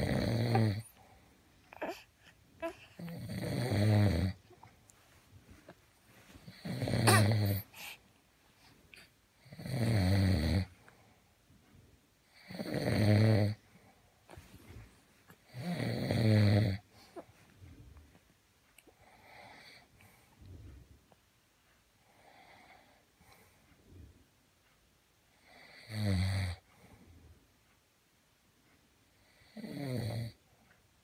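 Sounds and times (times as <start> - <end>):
man snoring: 0.0 - 0.9, 3.0 - 4.4, 6.5 - 7.6, 9.4 - 10.7, 12.4 - 13.6, 15.5 - 16.8, 25.5 - 26.6, 29.4 - 30.4.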